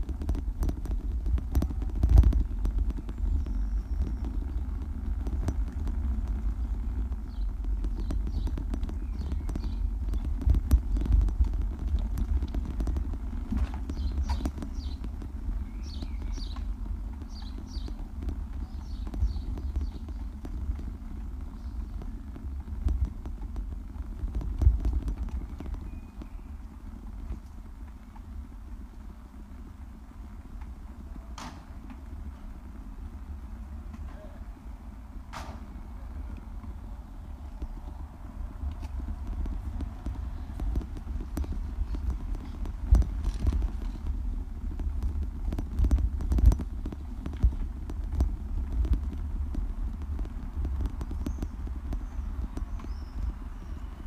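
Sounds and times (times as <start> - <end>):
bicycle rattling over bricks: 0.0 - 54.0
steady low rumble: 0.0 - 54.0
birds chirping: 0.4 - 54.0
sharp knocks: 35.3 - 35.7.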